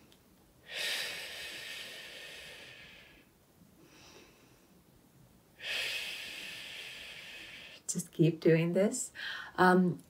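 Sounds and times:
breath in through nose: 5.6s - 7.9s.

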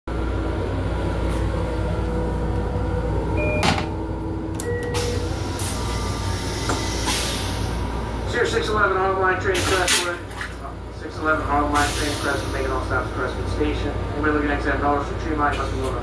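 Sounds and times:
railcar rumble: 0.1s - 16.0s.

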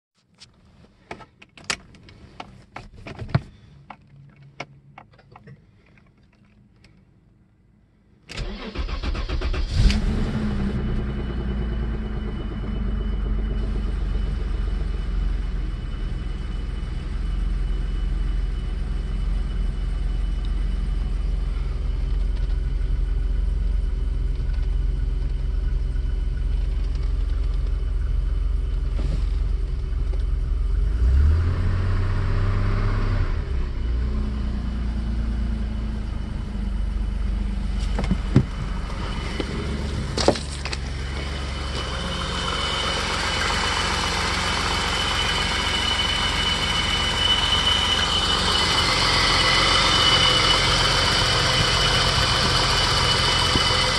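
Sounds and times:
car engine idling: 8.4s - 31.2s, 33.7s - 53.9s.

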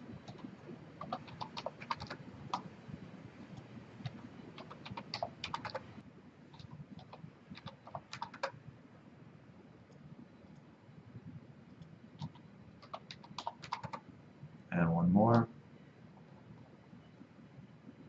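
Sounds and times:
keyboard keystrokes: 0.2s - 2.6s, 3.6s - 5.9s, 6.5s - 8.6s, 12.2s - 14.0s.

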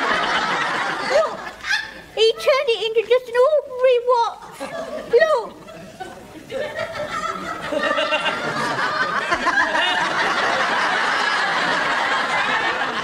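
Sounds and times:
studio audience laughing: 0.0s - 2.0s, 4.5s - 13.0s.

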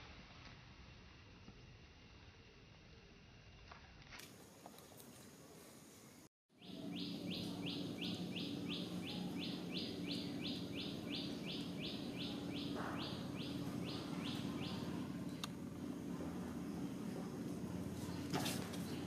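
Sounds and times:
steady low hum: 4.3s - 19.0s
high chirping call: 6.6s - 15.4s.

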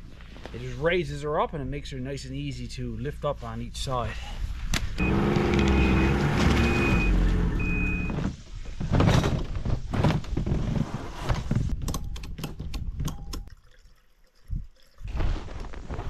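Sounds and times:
sled knocks and rustling: 6.1s - 11.8s.

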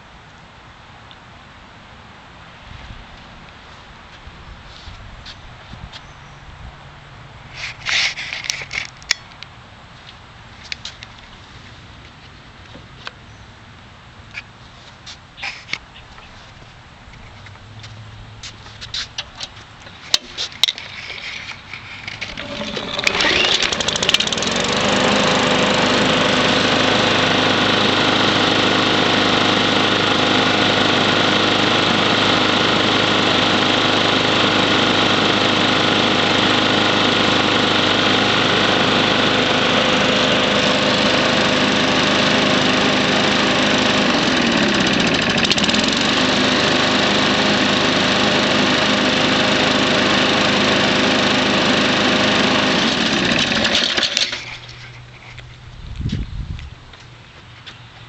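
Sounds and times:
lawn mower engine starting: 17.3s - 55.8s.

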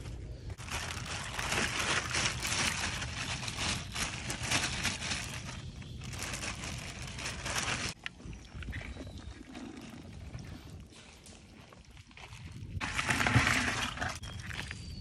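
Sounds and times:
plastic bag crinkling: 0.6s - 8.0s.

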